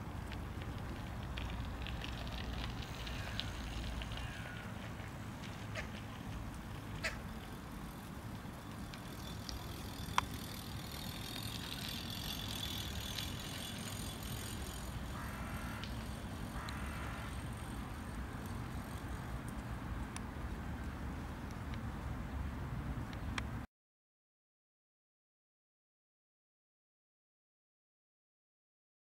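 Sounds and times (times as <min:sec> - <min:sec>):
crow sharp clicks: 0:03.0 - 0:04.8, 0:15.2 - 0:17.4
crow raspy quack-like sounds: 0:04.2 - 0:04.7, 0:05.7 - 0:06.0, 0:07.0 - 0:07.2, 0:15.1 - 0:15.9, 0:16.5 - 0:17.4.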